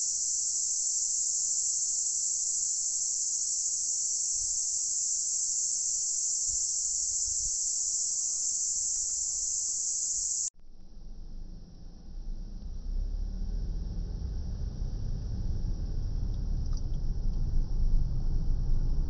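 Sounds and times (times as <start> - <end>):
insect chorus drone: 0.0 - 10.5.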